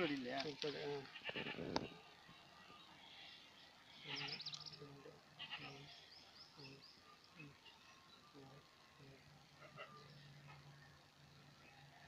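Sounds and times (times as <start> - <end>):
faint animal bleating: 0.9 - 2.0, 3.0 - 4.4, 5.3 - 6.7, 9.6 - 10.2.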